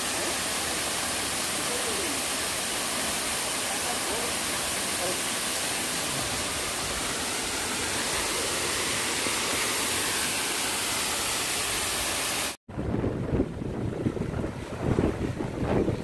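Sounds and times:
waterfall rushing: 0.0s - 12.6s
wind buffeting microphone: 12.7s - 16.0s.

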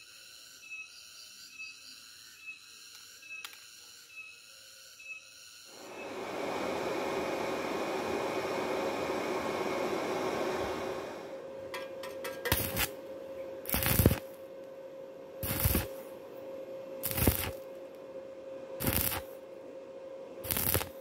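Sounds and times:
steady hiss: 5.7s - 19.7s, 20.4s - 21.0s
faint steady whine: 5.7s - 21.0s
welding arc bursts: 12.2s - 13.0s, 13.6s - 14.4s, 15.4s - 16.0s, 17.0s - 17.6s, 18.8s - 19.4s, 20.4s - 21.0s.

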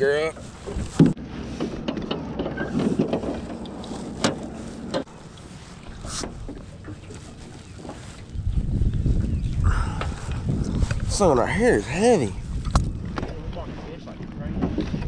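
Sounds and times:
rope rasping and rustling: 0.4s - 8.4s.

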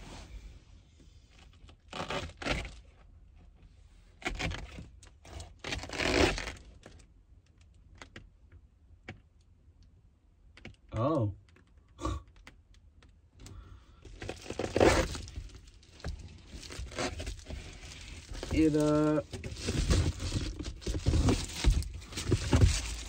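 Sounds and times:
foil cover crinkling: 14.2s - 23.0s
nylon sleeping bag rustling: 16.3s - 23.0s.

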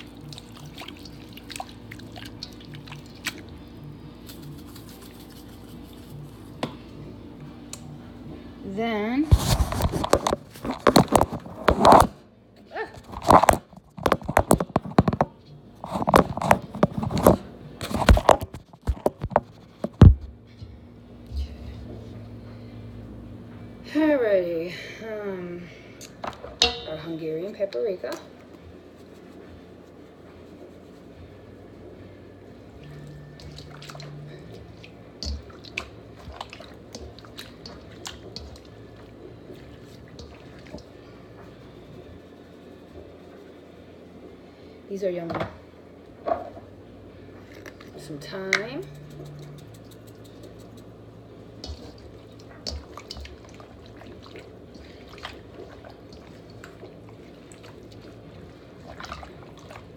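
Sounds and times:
containers clicking and tapping: 13.1s - 20.1s.

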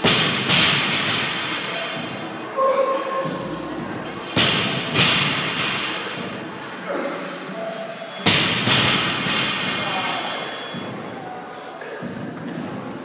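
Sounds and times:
barbells thudding on gym floor: 0.0s - 2.2s, 4.2s - 6.3s, 8.2s - 10.2s
background music: 0.0s - 13.0s.

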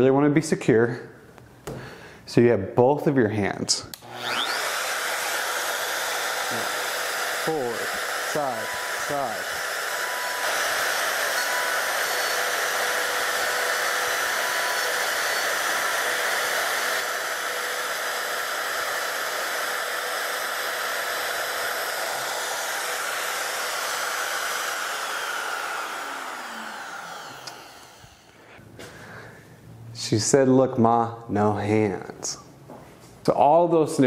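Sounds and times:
router high whine: 3.9s - 28.4s
router winding down: 3.9s - 28.4s.

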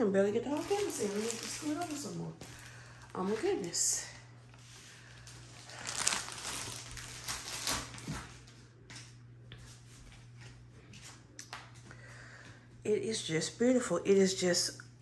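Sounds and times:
plastic film and canvas crinkling: 0.0s - 8.6s
steady low hum: 0.0s - 15.0s.

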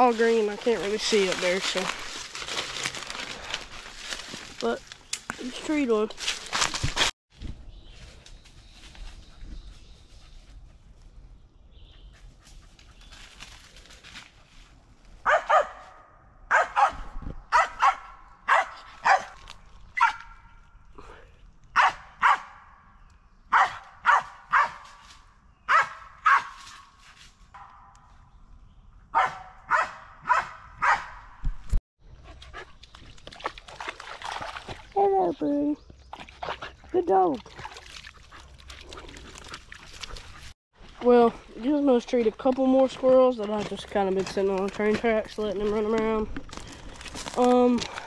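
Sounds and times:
dog barking: 15.2s - 19.4s, 20.0s - 20.4s, 21.8s - 22.6s, 23.5s - 24.8s, 25.7s - 26.6s, 29.1s - 31.2s.

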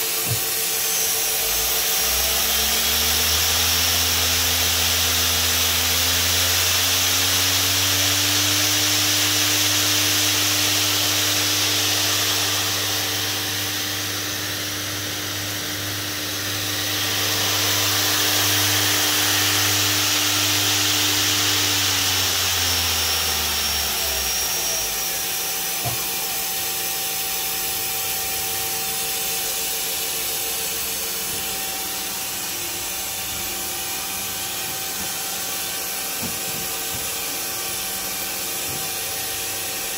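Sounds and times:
spindle drive hum and whine: 0.0s - 39.9s.

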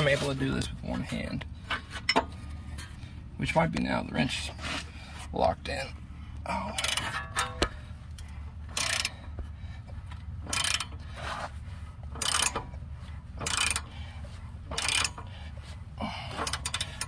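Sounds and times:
ratchet wrench clicking: 6.7s - 9.2s, 10.4s - 11.4s, 12.1s - 12.7s, 13.4s - 13.9s, 14.7s - 15.3s, 16.3s - 17.0s.

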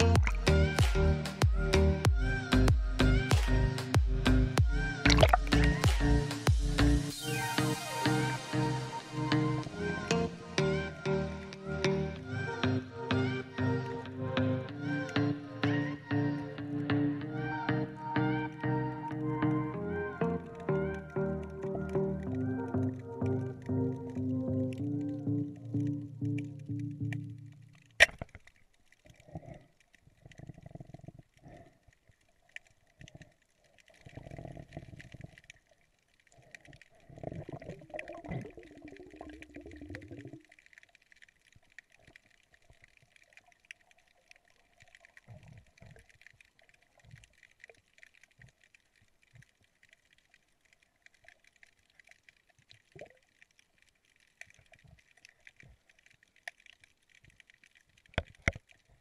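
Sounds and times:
underwater bubbling: 0.0s - 59.0s
faint clicks: 20.6s - 59.0s.

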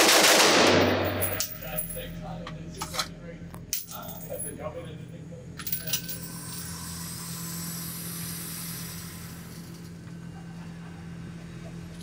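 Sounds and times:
low ventilation hum: 0.0s - 12.0s
sharp metallic clinks: 0.9s - 2.2s, 5.6s - 6.7s.

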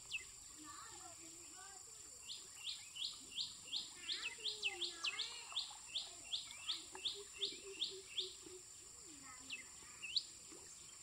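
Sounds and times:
bird chirping: 2.2s - 8.6s.

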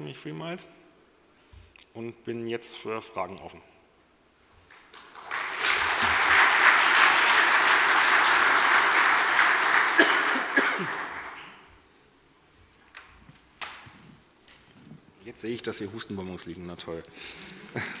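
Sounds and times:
audience applauding: 4.7s - 11.8s.

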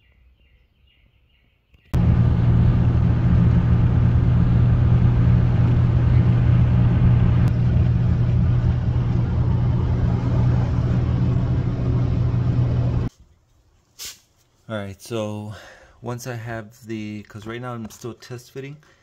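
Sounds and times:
road and engine noise in cab: 2.0s - 13.1s.

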